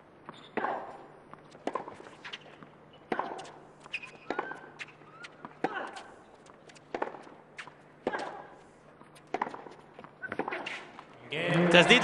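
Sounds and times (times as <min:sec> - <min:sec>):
shoe squeak: 0:00.3 - 0:00.6, 0:02.1 - 0:05.5
racket striking tennis ball: 0:00.4 - 0:06.1, 0:06.7 - 0:08.6, 0:09.2 - 0:10.9.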